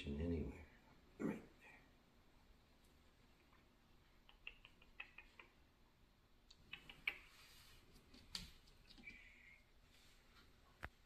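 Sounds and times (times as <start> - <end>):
faint clicks and ticks: 3.4 - 5.6
soft rustle: 7.1 - 11.0.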